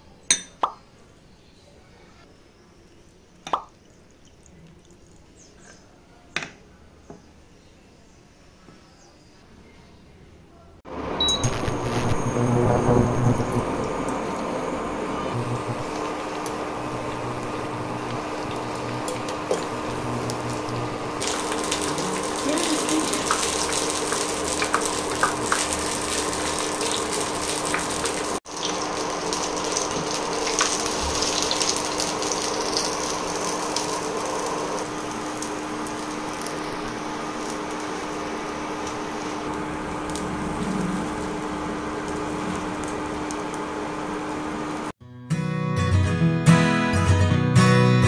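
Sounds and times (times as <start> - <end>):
steady hum: 10.9 - 44.9
oil sizzling and crackling: 10.9 - 45.0
guitar music: 45.0 - 48.0.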